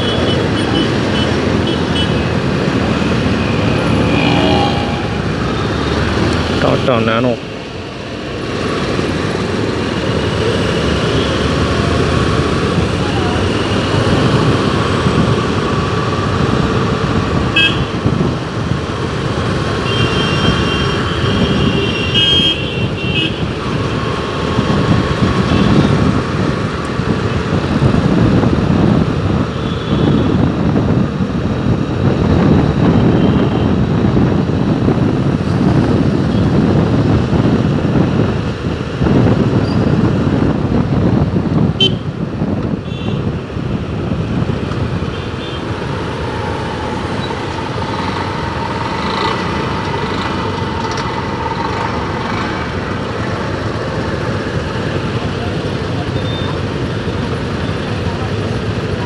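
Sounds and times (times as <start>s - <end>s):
road traffic rumble: 0.0s - 59.0s
vehicle horn beeps: 19.8s - 23.4s, 41.8s - 42.0s.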